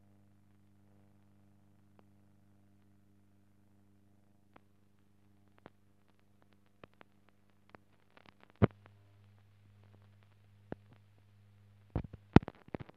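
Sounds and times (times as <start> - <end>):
steady low hum: 0.0 - 12.9
film clicks and pops: 4.5 - 11.3, 11.9 - 12.9.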